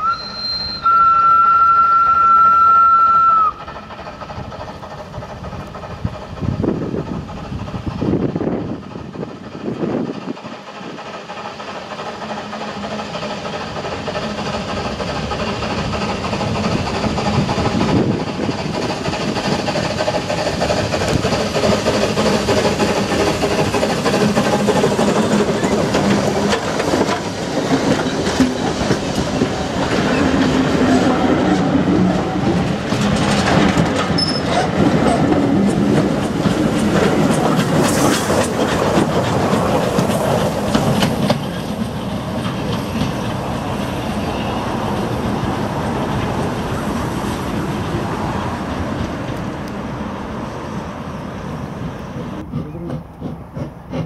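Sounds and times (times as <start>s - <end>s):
steam locomotive passing: 0.0s - 54.0s
wheels clattering over rail joints: 3.6s - 50.4s.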